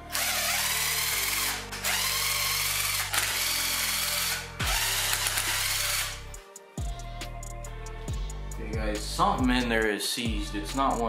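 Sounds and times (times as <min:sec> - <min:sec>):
cordless power driver spinning: 0:00.1 - 0:06.2.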